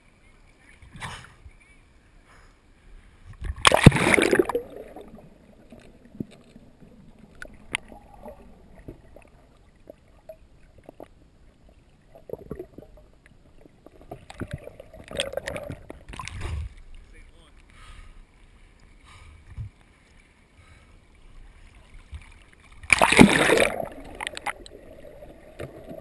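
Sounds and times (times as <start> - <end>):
small underwater clicks: 3.3 - 11.2, 22.0 - 26.0
water sloshing: 3.4 - 11.2, 21.2 - 26.0
faint underwater gurgling: 3.4 - 19.8, 20.6 - 26.0
splash into water: 3.6 - 5.2, 22.8 - 24.6.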